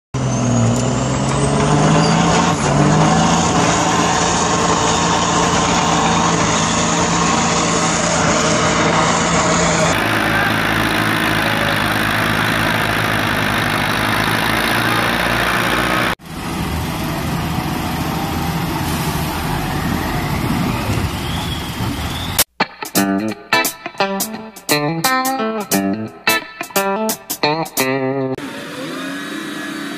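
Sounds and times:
diesel engines running: 0:00.2 - 0:22.5, 0:28.3 - 0:29.9.

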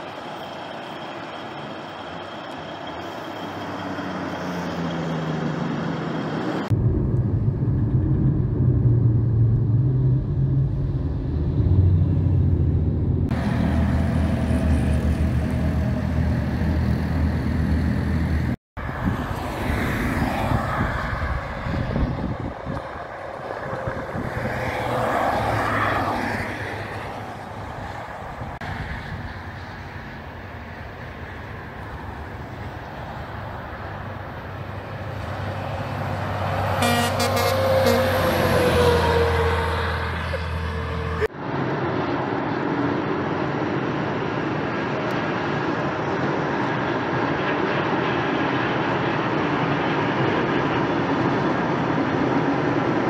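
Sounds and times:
heavy truck engine running: 0:00.0 - 0:18.6
traffic noise: 0:00.0 - 0:53.0
trucks passing: 0:00.0 - 0:53.0.

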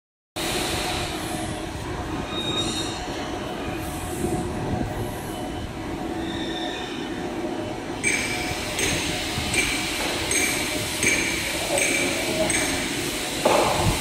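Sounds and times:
high-pitched machine squeals: 0:02.2 - 0:04.3, 0:05.0 - 0:12.9
machines clattering: 0:07.5 - 0:14.0.

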